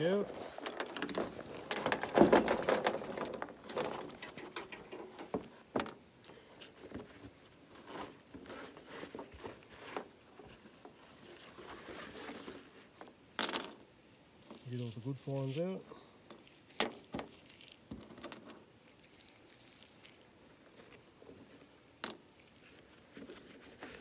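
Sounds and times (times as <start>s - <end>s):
fabric pouch rustling: 16.4s - 18.0s, 18.8s - 21.7s, 22.3s - 24.0s.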